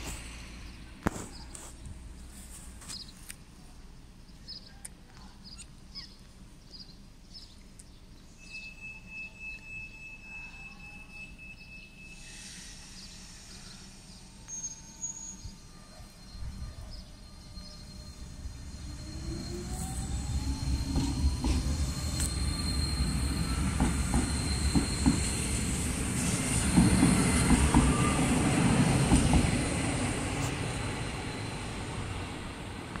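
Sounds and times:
train rumble: 0:00.0 - 0:04.4, 0:08.2 - 0:33.0
wheels knocking on rails: 0:23.8 - 0:25.3.

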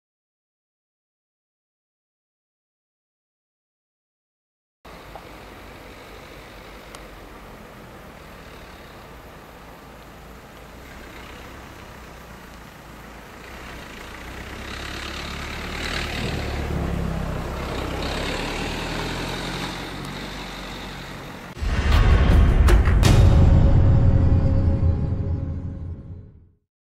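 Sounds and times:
vehicle passing: 0:04.9 - 0:22.4
loud music: 0:21.6 - 0:26.2.

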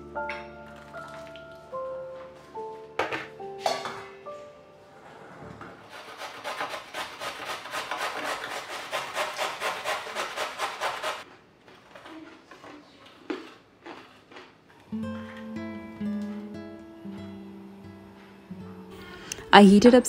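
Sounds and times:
carrot scraping on metal grater: 0:05.9 - 0:11.2.

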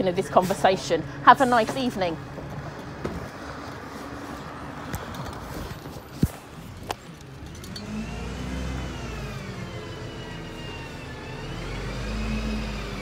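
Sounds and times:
bus engine running: 0:00.0 - 0:13.0.

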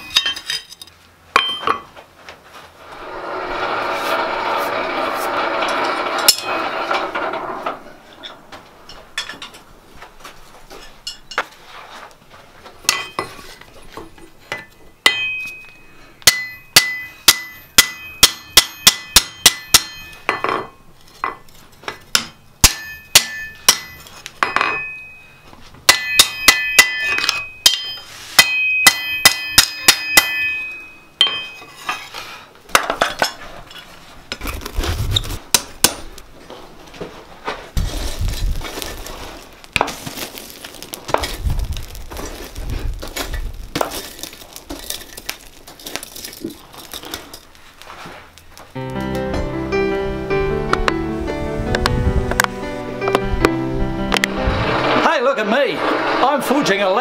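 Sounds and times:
hammer striking steel on anvil: 0:01.4 - 0:01.9, 0:12.9 - 0:13.3, 0:14.5 - 0:21.4, 0:22.1 - 0:25.2, 0:25.9 - 0:32.0
anvil ringing: 0:14.6 - 0:20.9, 0:22.1 - 0:31.8.

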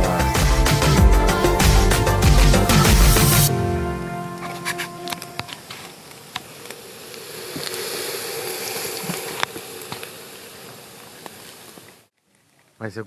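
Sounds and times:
insect buzzing: 0:04.5 - 0:11.9
steady hiss: 0:04.8 - 0:12.1.

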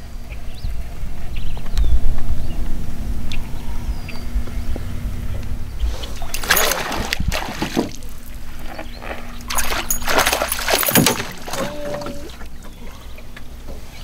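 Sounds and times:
fish splashing at surface: 0:06.0 - 0:12.4.

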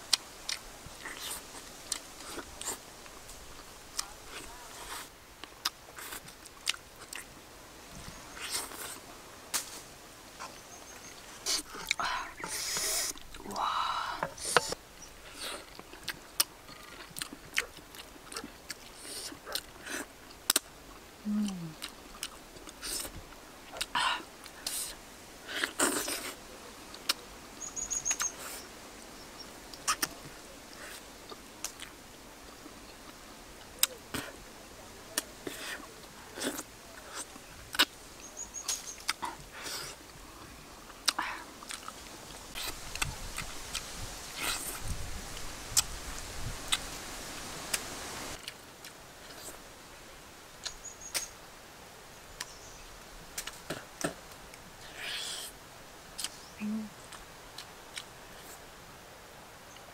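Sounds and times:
lip smacks and chewing: 0:04.9 - 0:07.3, 0:14.6 - 0:20.7, 0:29.7 - 0:30.2, 0:38.6 - 0:44.9, 0:56.2 - 0:56.4
person chewing and lip smacking: 0:05.6 - 0:07.3, 0:15.4 - 0:20.7, 0:21.3 - 0:23.1, 0:29.8 - 0:30.2, 0:41.0 - 0:42.0, 0:56.2 - 0:56.4
breathy sounds: 0:11.5 - 0:15.7.

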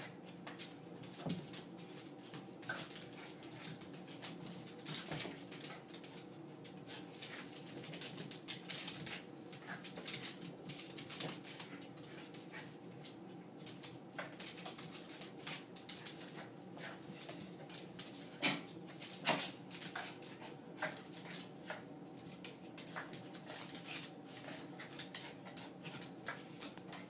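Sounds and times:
dogs play growling: 0:15.8 - 0:27.0.

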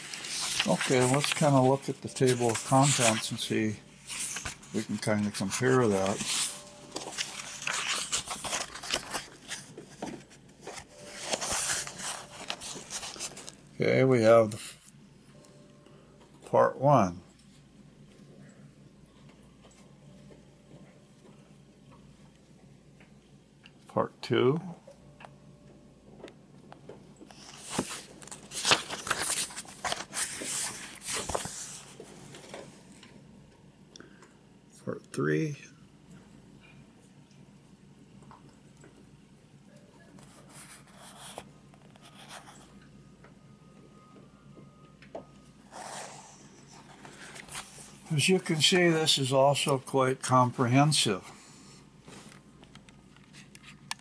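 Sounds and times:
book pages rustling: 0:00.0 - 0:13.6, 0:27.2 - 0:32.7, 0:45.7 - 0:48.7.

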